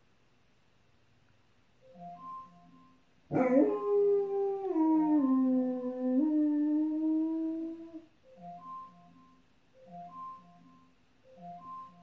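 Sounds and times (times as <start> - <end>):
dog howling: 3.3 - 8.1
alarm clock marimba melody: 8.3 - 12.0.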